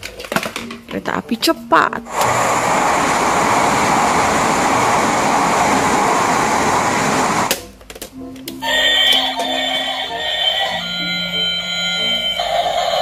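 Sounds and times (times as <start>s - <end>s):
toy train running: 2.1s - 7.5s, 8.6s - 13.0s.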